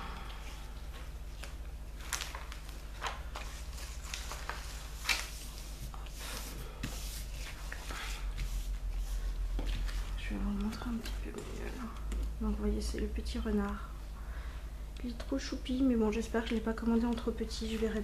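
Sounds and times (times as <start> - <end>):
steady low hum: 0.0 - 18.0
plastic film crinkling: 1.3 - 6.4.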